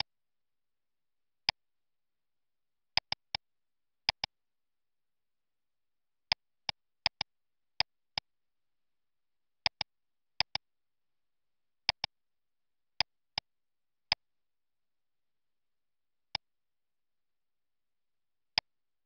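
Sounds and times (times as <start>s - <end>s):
computer mouse clicking: 3.0s - 3.4s, 4.1s - 4.3s, 7.0s - 7.3s, 9.6s - 10.6s, 11.9s - 12.1s.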